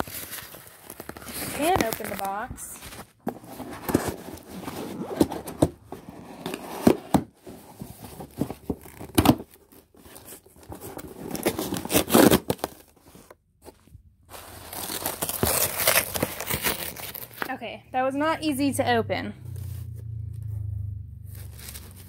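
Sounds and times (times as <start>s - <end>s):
cardboard tearing and crinkling: 0.0s - 13.4s, 14.3s - 17.5s, 21.3s - 22.0s.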